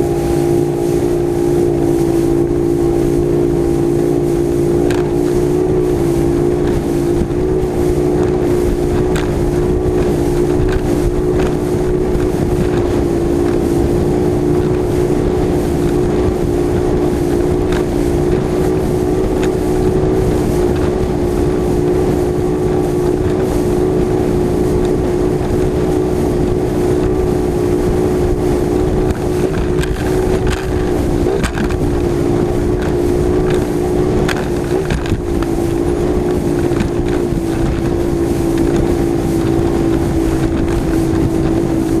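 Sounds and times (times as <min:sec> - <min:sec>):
hull knocking on waves: 0:00.0 - 0:42.0
outboard engine at high speed: 0:00.0 - 0:42.0
wind buffeting microphone: 0:00.0 - 0:42.0.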